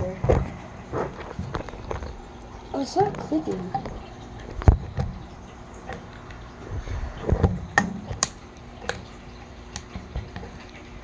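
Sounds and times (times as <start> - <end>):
wind rumbling on microphone: 6.1 - 7.8.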